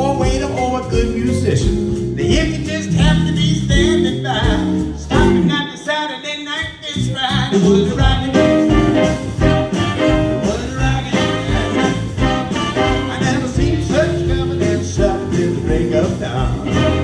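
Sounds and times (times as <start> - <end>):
drums: 0.0 - 5.9, 6.6 - 17.0
bass: 0.0 - 17.0
piano: 0.0 - 17.0
horn section: 8.0 - 17.0.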